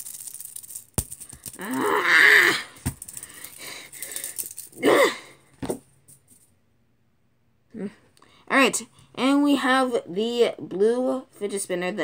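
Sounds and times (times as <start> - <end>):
boy groaning: 1.6 - 2.8, 4.8 - 5.4.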